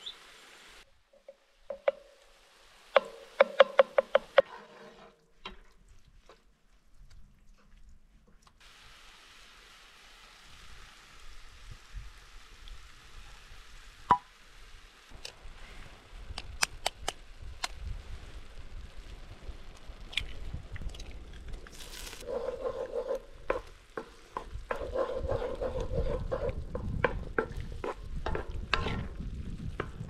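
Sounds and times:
faint fire hiss: 0:08.5 - 0:24.8.

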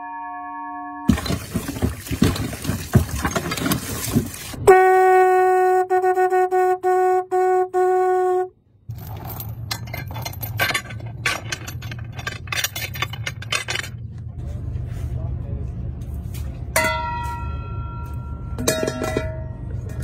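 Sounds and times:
anchor chain rattling on wooden deck: 0:01.1 - 0:04.4, 0:08.9 - 0:14.1
hand pump clanking and splashing: 0:01.1 - 0:04.6, 0:09.3 - 0:13.9, 0:18.6 - 0:20.0
horn steady note: 0:04.6 - 0:08.6.

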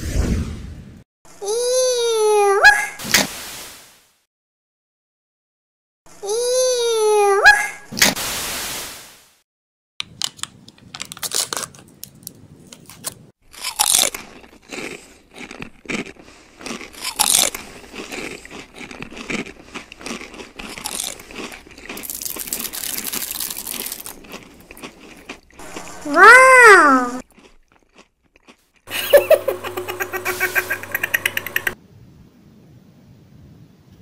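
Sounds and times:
packaging crinkling and tearing: 0:10.1 - 0:14.6, 0:20.6 - 0:26.0.

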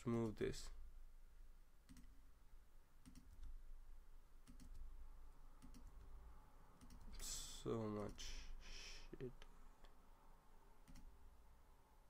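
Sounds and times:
computer mouse clicking: 0:01.9 - 0:02.2, 0:03.0 - 0:03.6, 0:04.4 - 0:04.9, 0:05.6 - 0:06.1, 0:06.8 - 0:07.2, 0:10.8 - 0:11.2.

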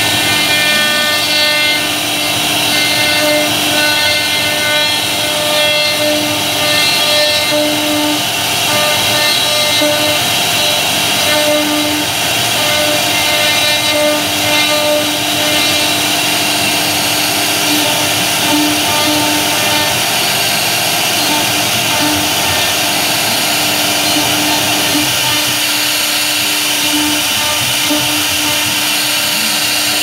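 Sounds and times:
router spindle carving wood: 0:00.0 - 0:30.0.

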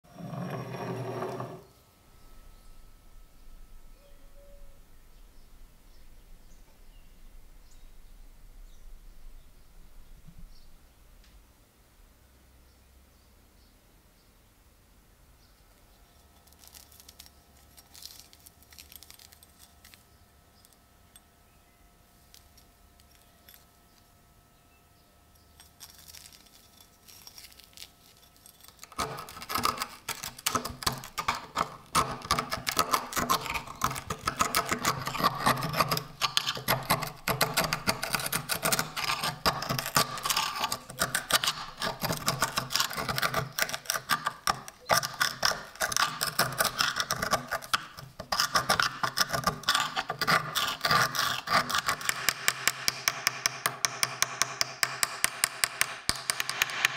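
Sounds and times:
chisel scraping rust off metal: 0:00.1 - 0:01.7, 0:26.6 - 0:56.9.

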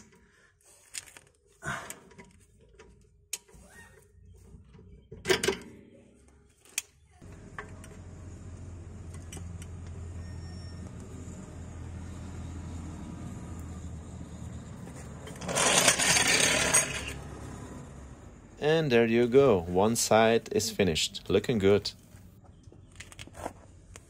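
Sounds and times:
vehicle engine humming: 0:07.2 - 0:24.0.

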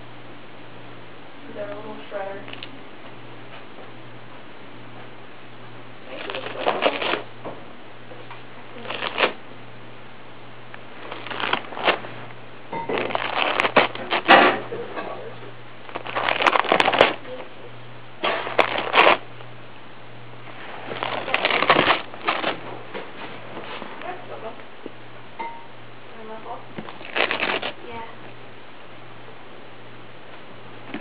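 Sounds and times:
cat tearing paper: 0:06.1 - 0:07.3, 0:08.8 - 0:09.4, 0:11.0 - 0:12.2, 0:12.9 - 0:14.6, 0:15.9 - 0:17.2, 0:18.2 - 0:19.2, 0:20.8 - 0:22.7, 0:26.8 - 0:27.8.

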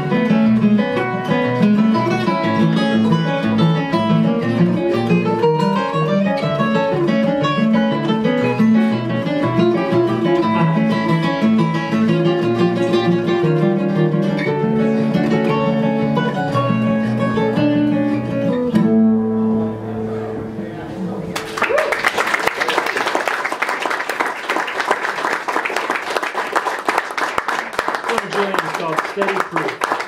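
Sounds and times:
acoustic guitars playing: 0:00.0 - 0:21.6.

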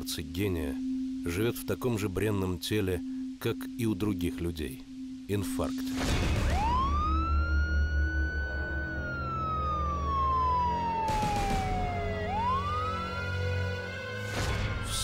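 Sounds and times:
ambulance siren wailing: 0:06.3 - 0:14.3.

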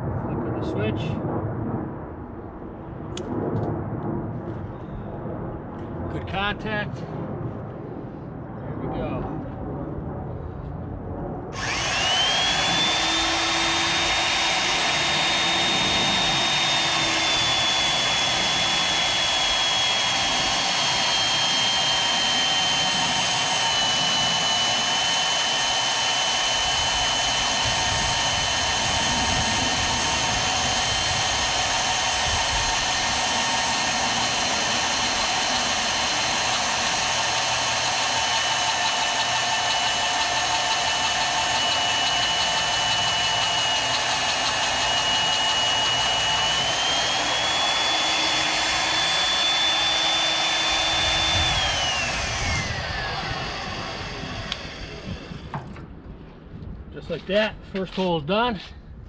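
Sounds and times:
drill cutting through steel: 0:11.6 - 0:55.6
drill motor whining: 0:11.6 - 0:55.6.

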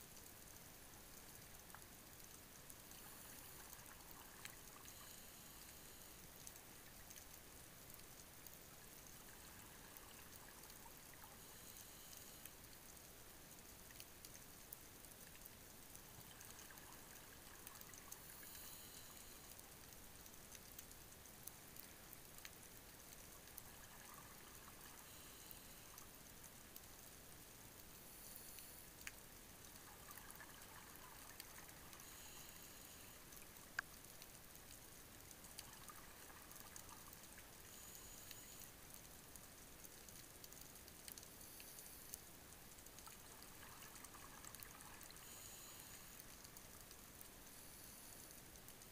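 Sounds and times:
faint underwater hiss: 0:00.0 - 0:48.9
sharp underwater clicks: 0:27.8 - 0:48.9.

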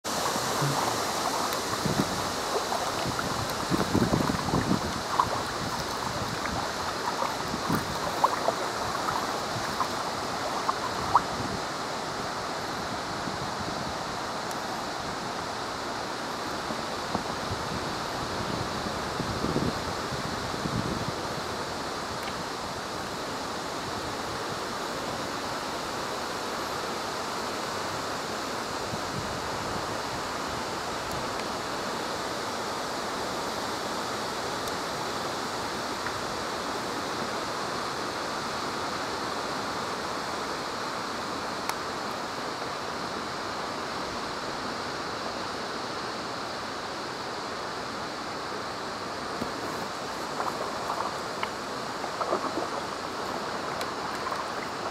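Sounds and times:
wind rustling tree leaves: 0:00.0 - 0:54.9.

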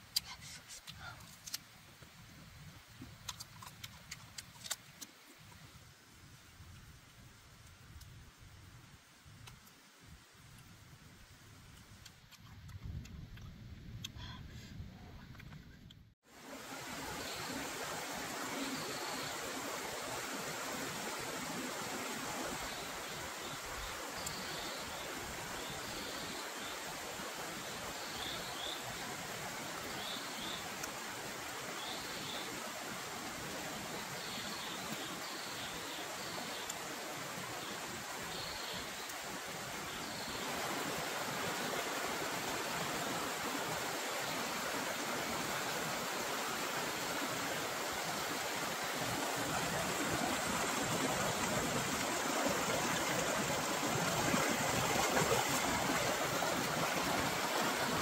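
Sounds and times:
stream rushing: 0:16.3 - 0:58.0.

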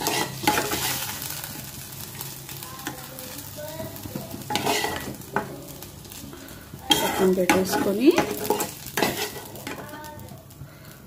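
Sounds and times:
spoon scraping a pan: 0:00.0 - 0:01.7, 0:04.1 - 0:05.6, 0:06.8 - 0:10.0
low sizzle: 0:00.0 - 0:11.0.

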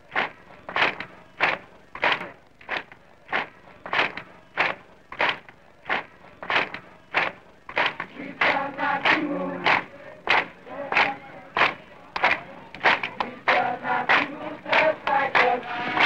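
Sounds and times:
group clapping rhythmically: 0:00.0 - 0:16.0
voices: 0:07.5 - 0:16.0.

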